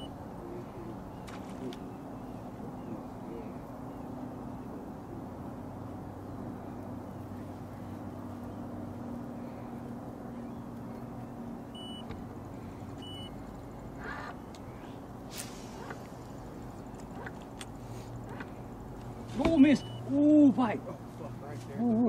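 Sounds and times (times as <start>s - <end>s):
high electronic beeps: 19.7s - 20.1s.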